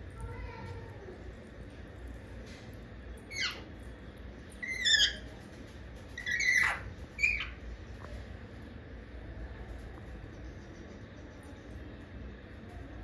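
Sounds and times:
parakeet squawks: 4.6s - 5.2s, 6.2s - 7.6s.

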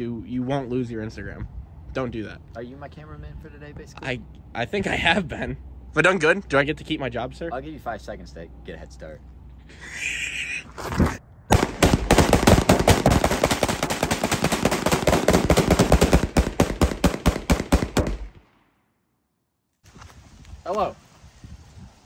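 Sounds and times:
rifle gunshots: 11.5s - 18.6s.

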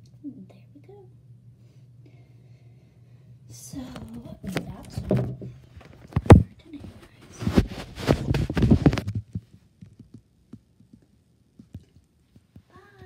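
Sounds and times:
phone handling thumps and rubbing: 4.4s - 9.5s.

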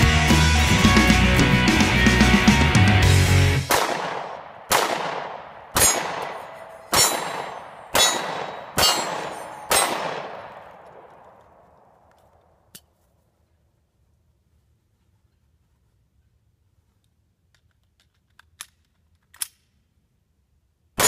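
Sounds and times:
pistol shots with echo: 3.7s - 12.0s.

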